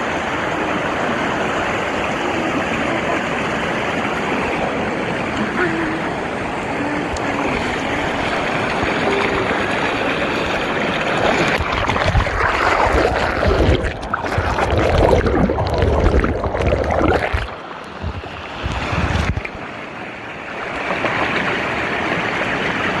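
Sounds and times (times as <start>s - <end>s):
stream rushing over boulders: 0.0s - 23.0s
wind buffeting microphone: 6.1s - 19.7s.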